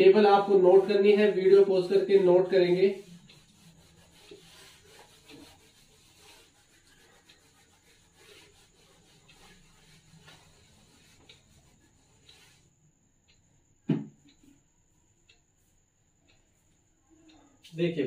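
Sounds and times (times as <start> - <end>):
eraser rubbing on whiteboard: 0.2 - 12.8.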